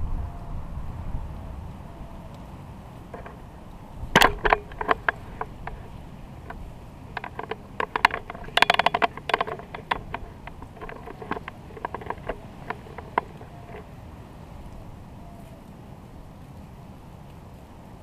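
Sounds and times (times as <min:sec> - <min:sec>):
hard objects clicking together: 0:03.1 - 0:13.9.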